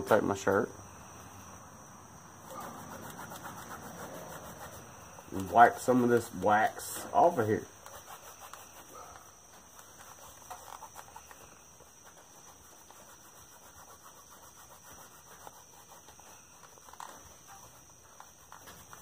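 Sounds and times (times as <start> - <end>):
fabric rubbing on leather: 2.4 - 19.0.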